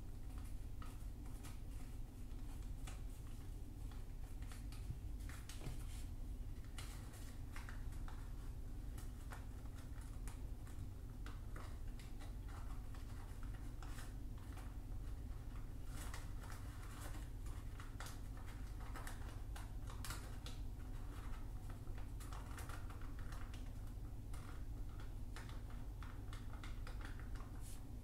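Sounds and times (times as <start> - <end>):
small paper clicks: 0.2 - 5.6, 6.6 - 27.7
paper rustling and crackling: 0.2 - 28.0.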